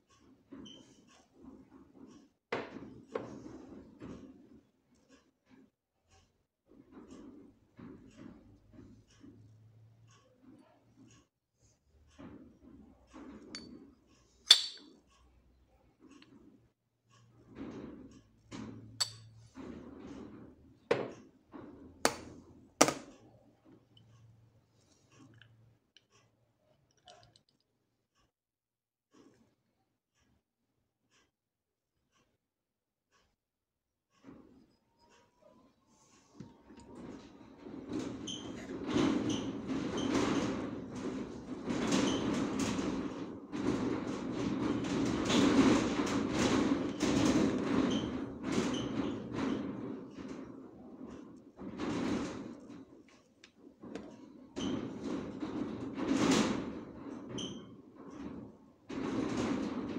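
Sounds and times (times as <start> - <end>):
metal knocks on sheet-metal bench: 21.9 - 23.1.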